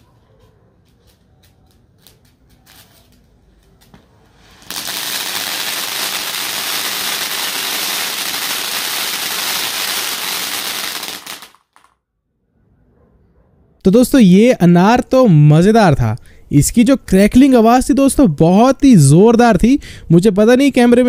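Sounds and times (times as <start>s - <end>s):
firework fountain crackling hiss: 3.8s - 11.9s.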